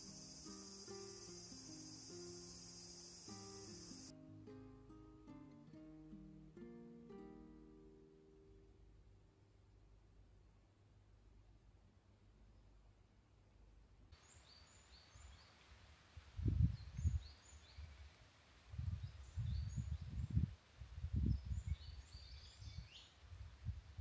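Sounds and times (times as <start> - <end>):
outdoor hiss: 0.0 - 4.1, 14.2 - 19.3
small birds chirping: 0.0 - 4.1.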